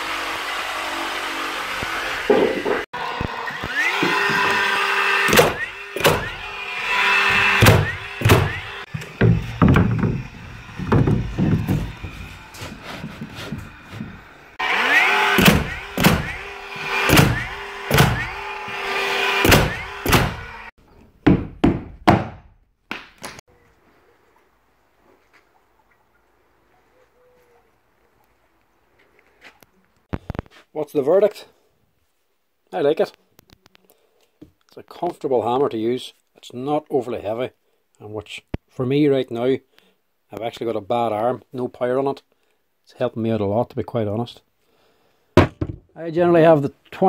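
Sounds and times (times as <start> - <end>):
nail gun motor whirring: 1.6 - 20.7
nail gun firing: 5.3 - 6.4, 7.4 - 10.0, 14.9 - 18.4, 19.4 - 20.5.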